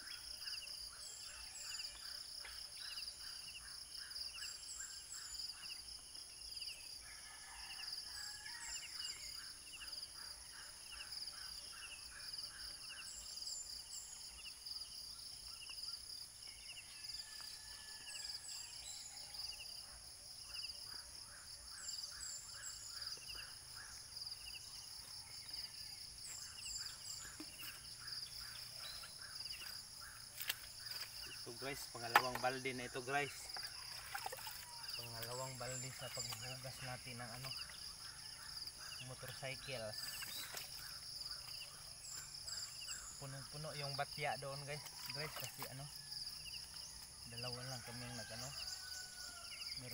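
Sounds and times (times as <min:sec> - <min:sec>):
insects droning: 0:00.0 - 0:49.9
birds chirping: 0:21.6 - 0:49.9.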